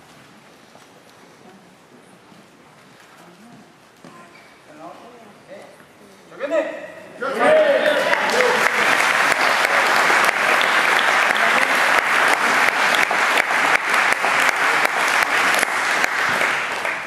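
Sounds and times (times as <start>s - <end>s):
crowd applauding: 7.4s - 17.0s.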